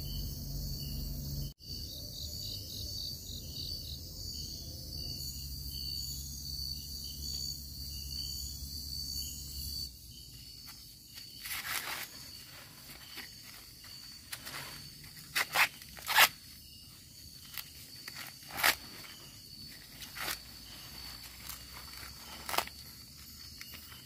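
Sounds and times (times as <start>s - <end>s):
night insects chirping: 0.0s - 24.0s
corn husk rustling and tearing: 11.2s - 16.6s, 17.4s - 24.0s.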